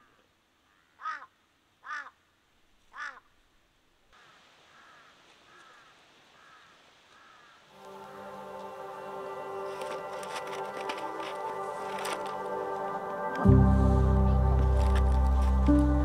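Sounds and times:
crow cawing: 0.0 - 2.2, 2.9 - 3.3, 4.2 - 7.7.

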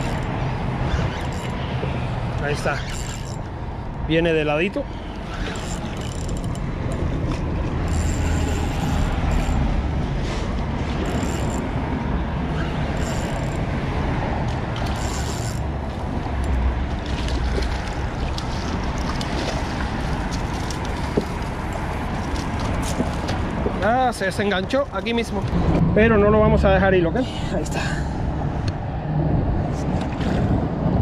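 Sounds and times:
traffic on bridge overhead: 0.0 - 31.0
wind on microphone: 28.2 - 31.0.

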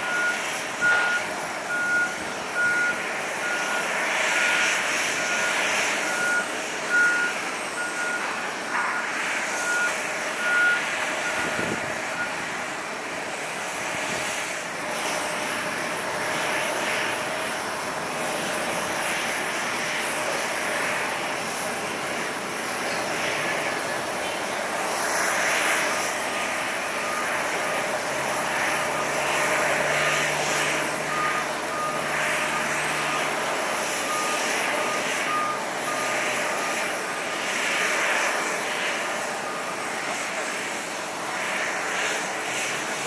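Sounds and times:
vehicle backup alarm beeping: 0.0 - 12.5, 27.0 - 28.0, 28.6 - 37.0
jet engine rushing hum: 0.0 - 43.0.

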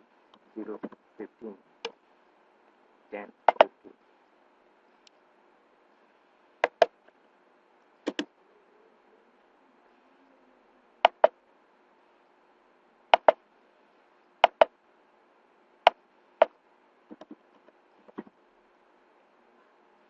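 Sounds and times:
faint steady hum: 0.0 - 20.0
computer mouse double clicks: 3.5 - 3.7, 6.6 - 6.9, 8.1 - 8.3, 11.1 - 11.3, 13.2 - 13.4, 14.4 - 14.7
soft keyboard taps: 17.1 - 17.4.

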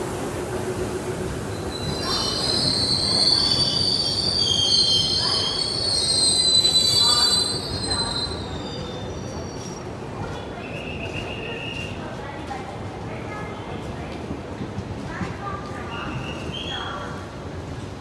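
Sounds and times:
train wheels squealing: 1.5 - 9.9, 15.9 - 17.1.

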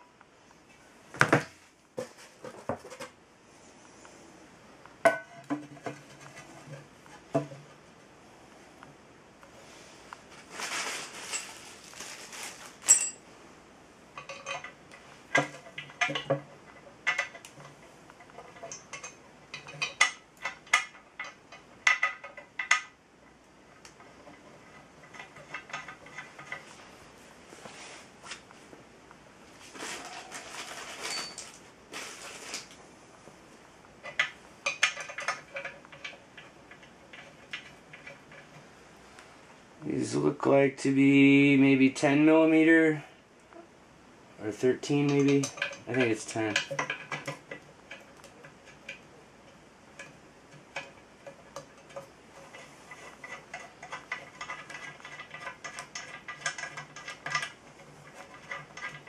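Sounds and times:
cardboard rustling: 10.3 - 12.9, 29.6 - 32.8
metal hardware clinking: 12.8 - 13.2.

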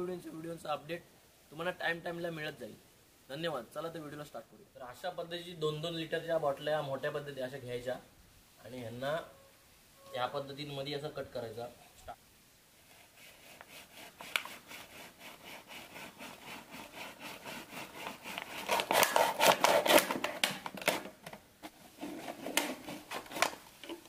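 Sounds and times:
blade sawing through plastic bottle: 13.0 - 21.1, 22.0 - 23.6.

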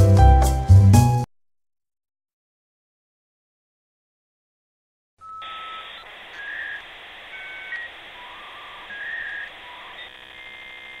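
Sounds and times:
short electronic beeps: 5.2 - 11.0
steady hiss: 5.4 - 11.0.

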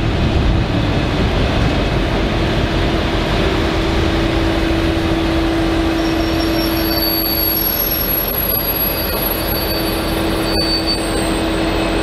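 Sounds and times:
low diesel engine drone: 0.0 - 12.0
train rolling past: 0.0 - 12.0
high wheel squeals: 5.4 - 12.0.

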